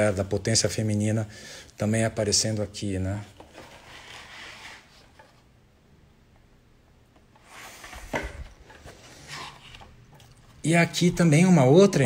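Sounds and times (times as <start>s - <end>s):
paper rustling: 3.3s - 5.4s
book thud: 7.8s - 8.6s.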